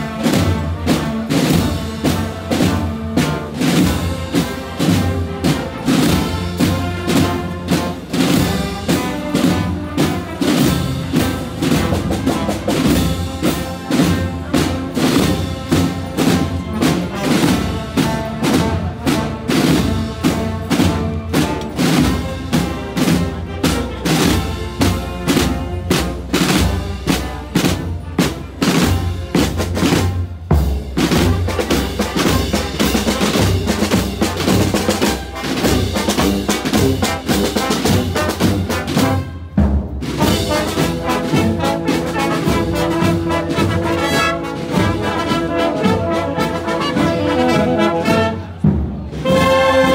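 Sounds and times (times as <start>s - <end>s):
steady drum beat: 0.0s - 49.9s
brass sustained chords: 40.2s - 48.6s, 49.2s - 49.9s.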